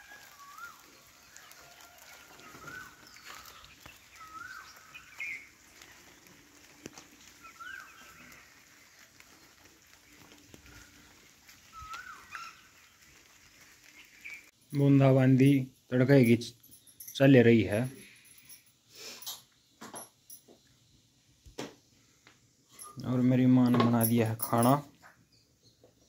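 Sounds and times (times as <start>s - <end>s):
peacock calling: 0.0s - 14.5s.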